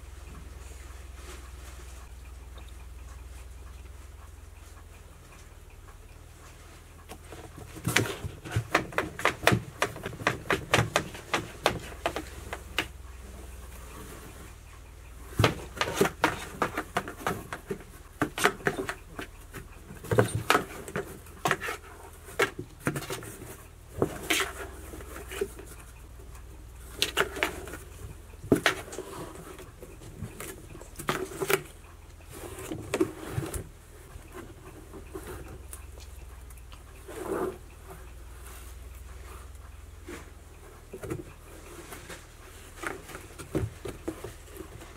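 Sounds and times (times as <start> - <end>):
cats scratching cardboard box: 7.1 - 13.0, 15.2 - 25.9, 26.8 - 33.7.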